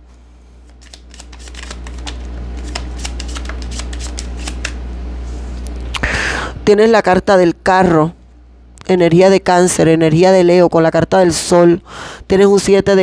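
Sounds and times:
low steady hum: 0.0s - 13.0s
cards being shuffled: 0.6s - 4.8s.

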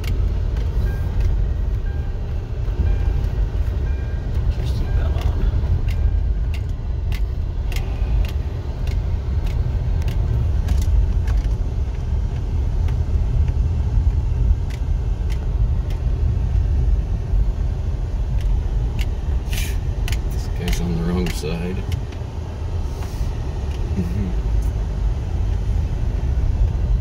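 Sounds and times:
car cabin low rumble: 0.0s - 27.0s
small clicks and knocks: 20.0s - 22.2s.

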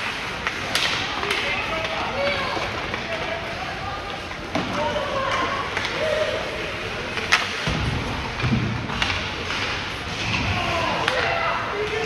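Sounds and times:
puck and sticks striking boards: 0.0s - 3.3s, 4.2s - 6.2s, 7.1s - 12.0s
murmur of spectators: 0.0s - 12.0s.

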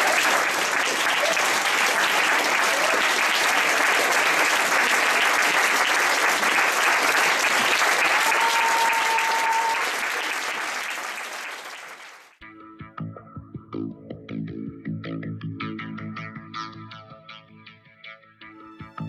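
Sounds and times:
audience applauding: 0.0s - 12.4s.

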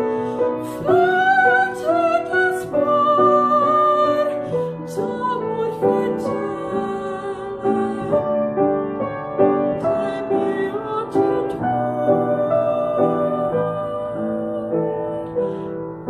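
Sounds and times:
grand piano chords: 0.0s - 16.0s
woman singing art song: 0.0s - 16.0s.

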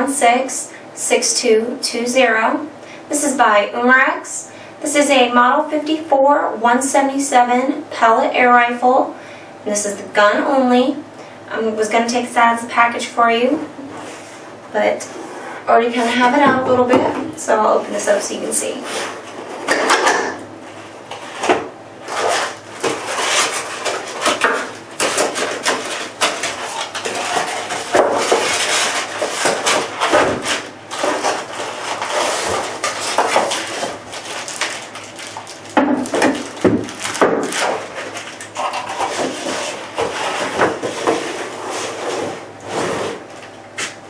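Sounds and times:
cardboard box and plastic rustling: 22.0s - 43.5s.

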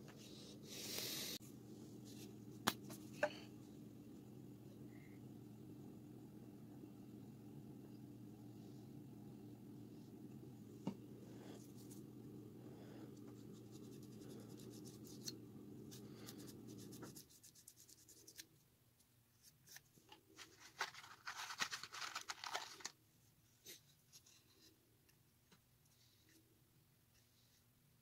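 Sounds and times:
low steady hum: 0.0s - 19.4s
scratchy rubbing: 13.4s - 18.4s.

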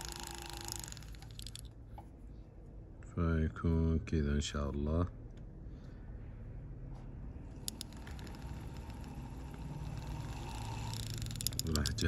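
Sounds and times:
rotary tool motor whine: 0.0s - 1.7s, 7.5s - 12.0s.

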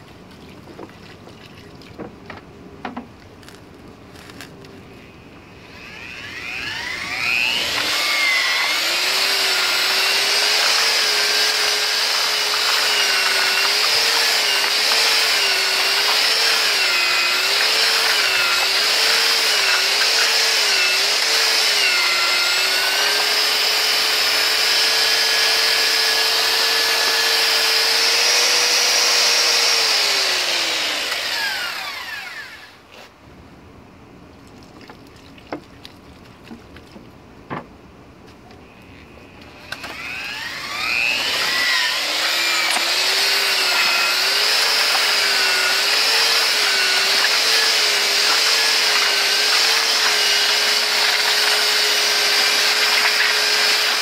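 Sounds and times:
electric paddle mixer whining: 5.4s - 32.8s, 39.2s - 54.0s.

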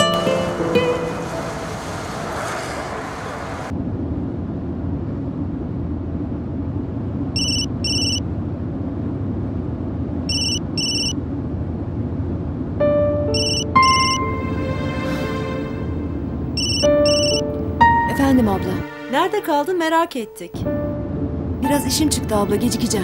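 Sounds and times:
phone ringtone beeps: 7.4s - 8.2s, 10.3s - 11.2s, 13.3s - 14.4s, 16.6s - 17.5s.

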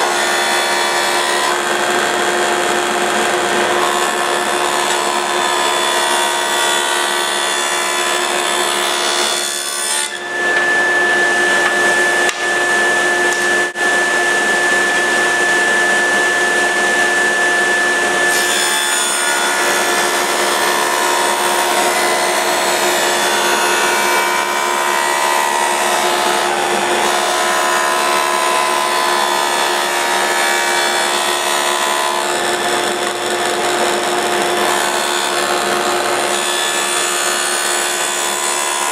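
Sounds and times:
power tool cutting wood: 0.0s - 38.9s
high steady whine: 10.2s - 18.2s.

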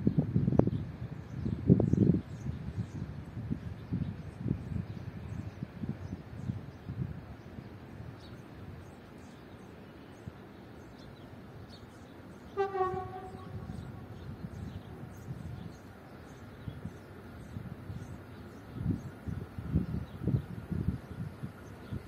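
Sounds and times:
train horn blast: 12.5s - 14.3s.

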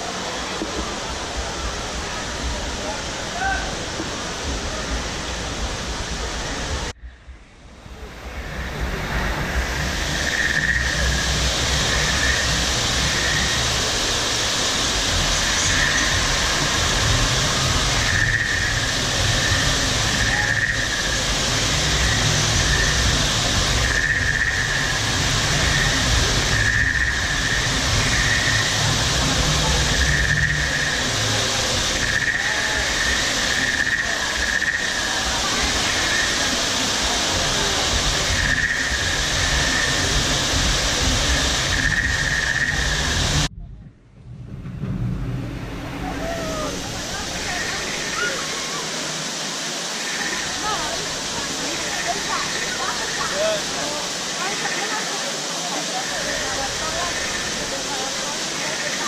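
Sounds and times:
waterfall rushing into pond: 0.0s - 7.0s, 7.7s - 43.5s, 45.1s - 59.0s
high warbling call: 44.6s - 49.1s.

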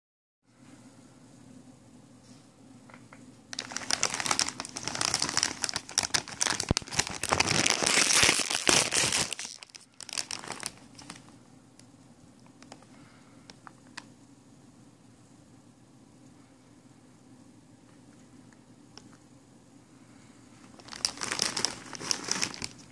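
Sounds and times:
plastic chip bag crinkling: 3.5s - 11.4s, 20.7s - 22.9s.

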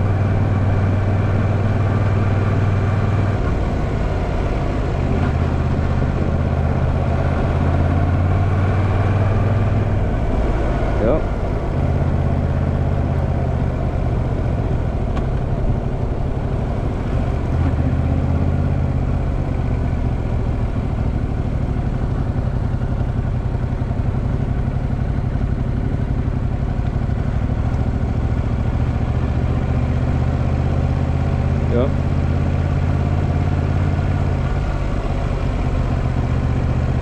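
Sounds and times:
motorcycle engine running: 0.0s - 37.0s
road and wind noise: 0.0s - 37.0s.

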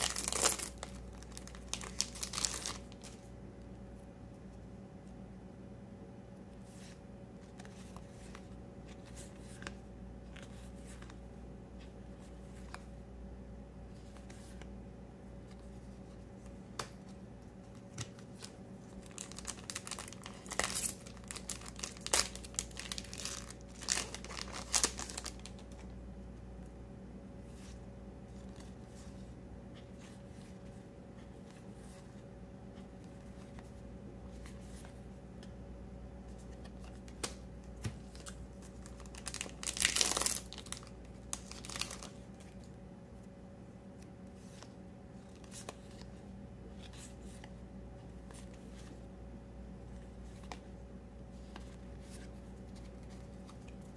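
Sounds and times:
crinkling and rustling: 0.0s - 3.3s, 15.5s - 25.9s, 36.3s - 42.8s
low steady hum: 0.0s - 53.9s.

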